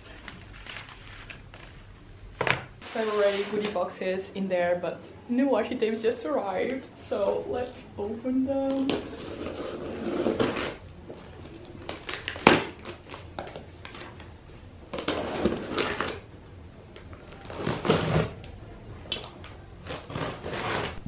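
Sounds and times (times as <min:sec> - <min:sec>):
cardboard rustling: 0:02.8 - 0:03.8
packing tape tearing: 0:08.7 - 0:10.8, 0:11.4 - 0:14.2, 0:14.9 - 0:16.3, 0:17.2 - 0:18.5, 0:19.8 - 0:21.0.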